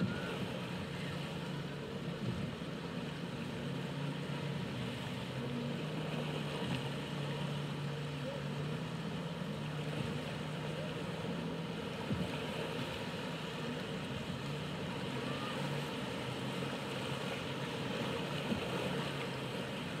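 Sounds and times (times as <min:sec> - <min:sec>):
motorboat engine drone: 0:00.0 - 0:20.0
spray and breaking waves: 0:00.0 - 0:20.0.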